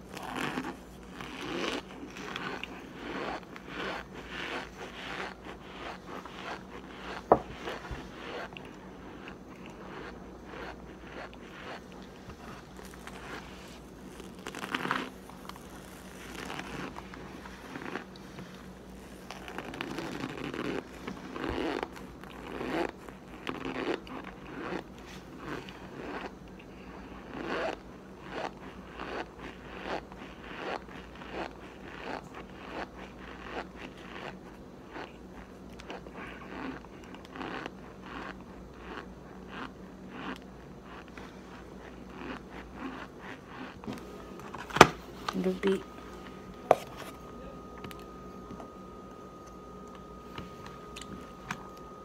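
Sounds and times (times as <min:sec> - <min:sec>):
crunchy chewing: 0:00.0 - 0:45.4.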